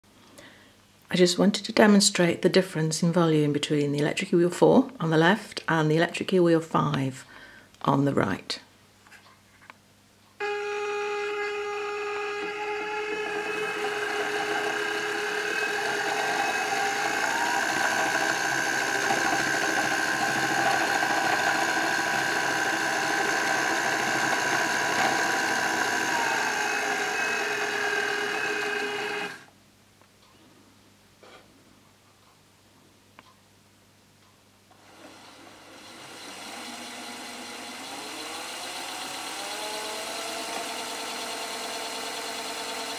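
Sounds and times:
electric spinning wheel motor whine: 10.4 - 29.5, 34.8 - 42.9.

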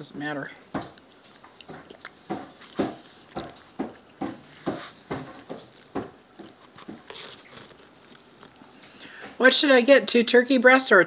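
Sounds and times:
close chewing with wet mouth smacks: 0.9 - 4.0, 5.2 - 8.8.

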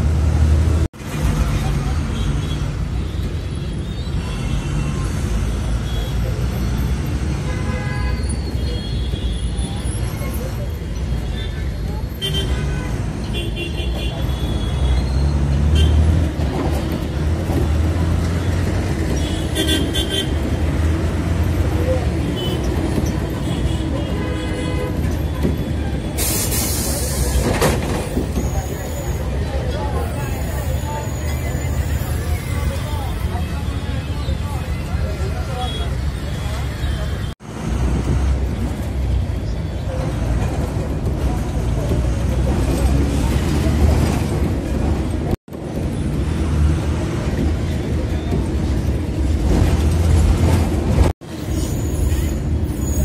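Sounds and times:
bus engine rumble: 0.0 - 53.0
street sounds: 0.0 - 53.0
faint voices: 24.9 - 37.4
air brakes hissing: 26.0 - 27.7.

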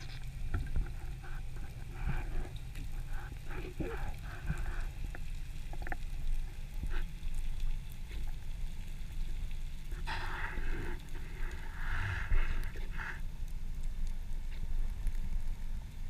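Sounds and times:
faint clicks and crackles: 0.0 - 16.0
underwater rumble: 0.0 - 16.0
rushing hiss: 10.0 - 13.2.

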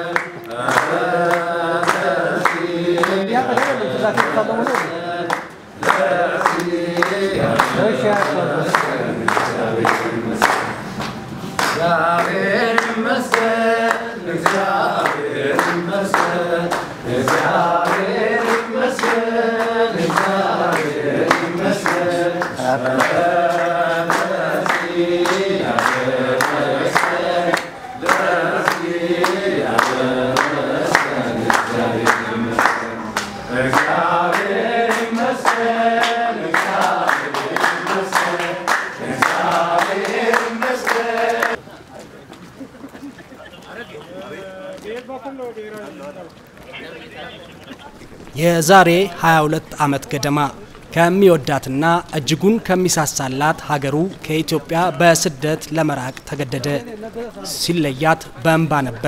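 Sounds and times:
rhythmic hand clapping: 0.0 - 41.6
crowd singing in chorus: 0.0 - 41.7.

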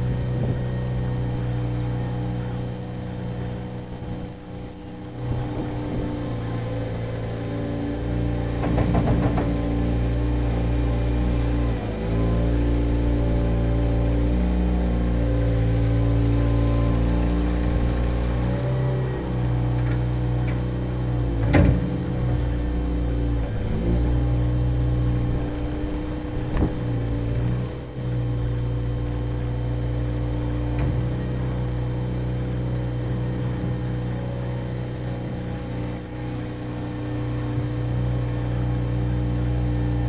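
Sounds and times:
loader engine running: 0.0 - 40.0
short knocks: 8.5 - 9.8.

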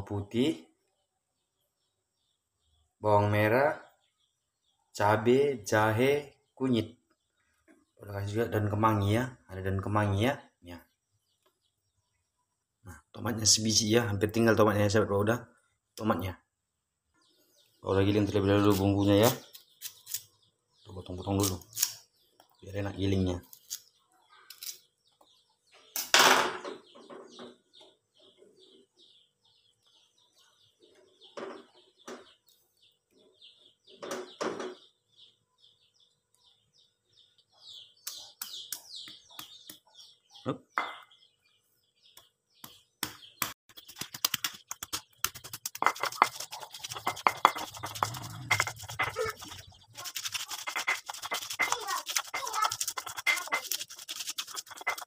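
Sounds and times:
small birds chirping: 0.0 - 55.0
stone grinding on stone slab: 44.7 - 55.0.

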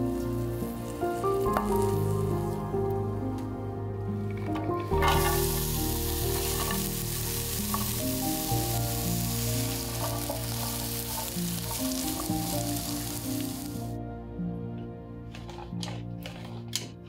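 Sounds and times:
onions sizzling in hot oil: 0.0 - 2.6, 4.9 - 14.0
spatula stirring in pan: 4.9 - 13.8.

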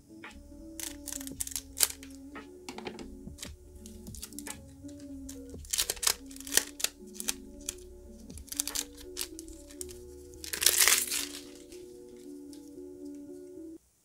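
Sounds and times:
soft background music: 0.0 - 13.8
card pack crinkling: 0.7 - 2.2, 3.0 - 12.7.

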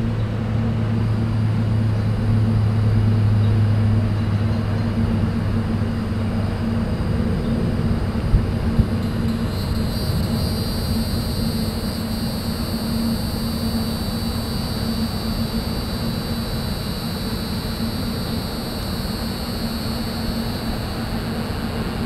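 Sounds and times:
highway traffic roar: 0.0 - 10.3
insects buzzing: 0.0 - 22.0.

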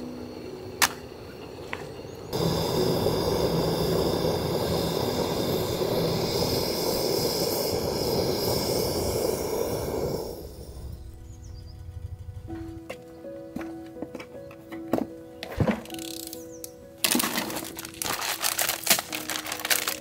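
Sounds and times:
kettle hissing on gas flame: 0.4 - 11.6.

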